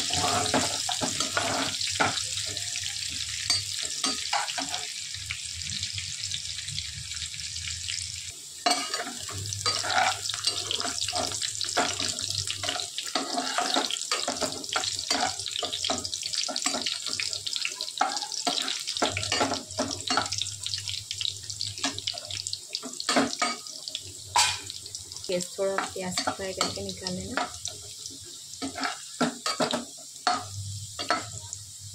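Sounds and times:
metal spatula scraping pan: 0.0 - 2.2, 8.7 - 17.2, 28.6 - 29.7
onions sizzling in hot oil: 0.0 - 31.9.

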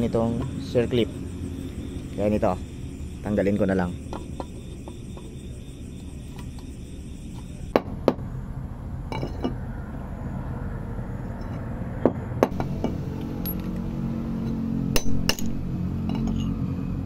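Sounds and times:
ringing metal clink: 12.5 - 13.8, 15.0 - 16.6.

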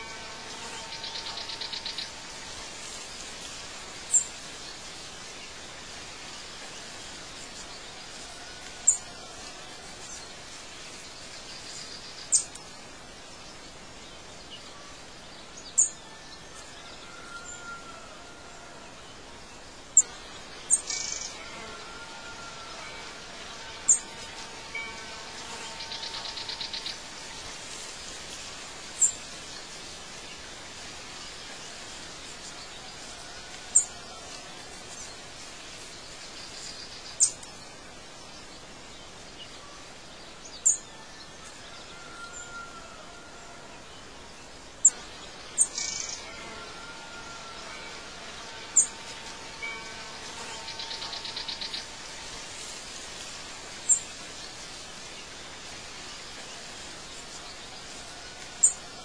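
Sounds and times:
steady background hiss: 0.0 - 59.0.

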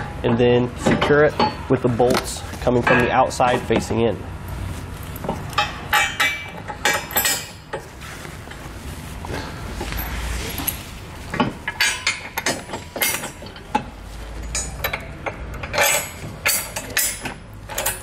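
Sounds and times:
low steady hum: 0.0 - 18.0
metal bolts clinking: 5.0 - 7.9, 9.8 - 18.0.

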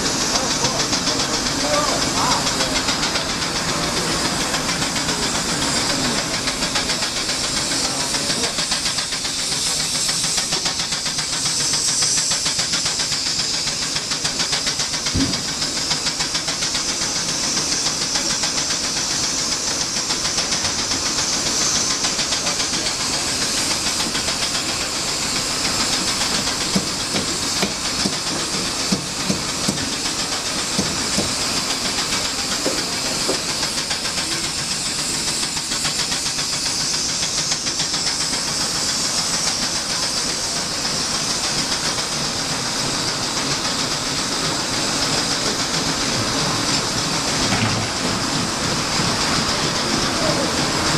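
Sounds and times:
steam engines beating: 0.0 - 50.9
steam hissing: 0.0 - 50.9
thump: 15.1 - 15.4.

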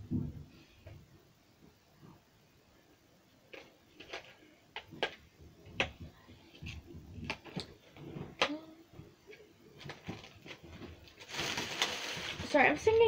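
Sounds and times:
plastic and card package opening: 9.8 - 12.6.

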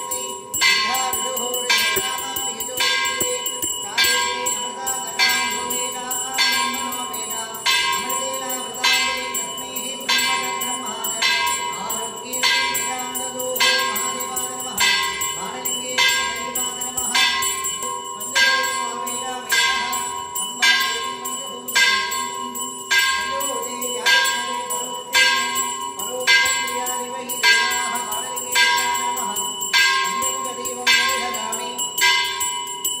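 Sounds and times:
temple bells ringing: 0.0 - 33.0.

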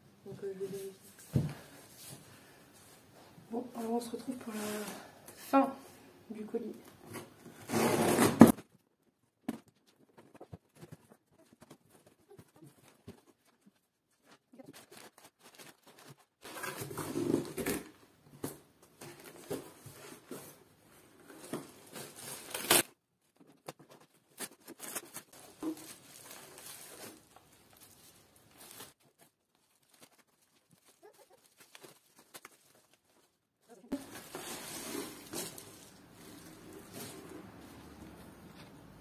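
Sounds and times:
packaging rustling: 9.6 - 17.9, 21.2 - 38.2
packing paper rustling: 9.7 - 17.9, 21.2 - 38.3.

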